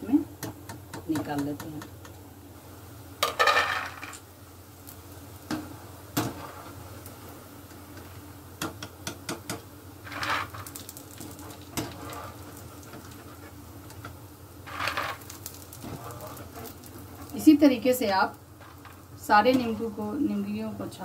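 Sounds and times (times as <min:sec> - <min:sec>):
oil sizzling in a pan: 0:00.0 - 0:21.0.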